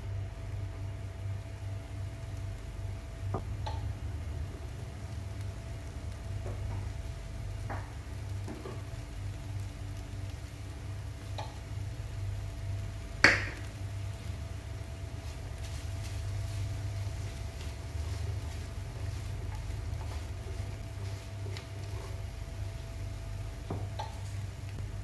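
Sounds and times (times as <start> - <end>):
electric hob humming: 0.0 - 25.0
spatula stirring in a pan: 13.9 - 24.6.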